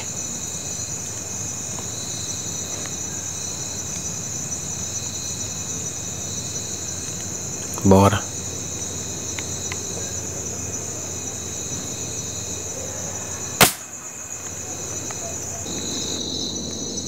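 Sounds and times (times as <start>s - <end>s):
night insects chirring: 0.0s - 17.0s
air rifle shot: 13.6s - 13.9s.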